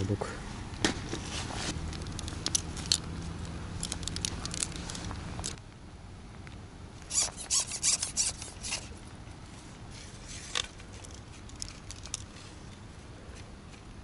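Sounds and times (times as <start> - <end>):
fishing line handling clicks: 1.9 - 5.6.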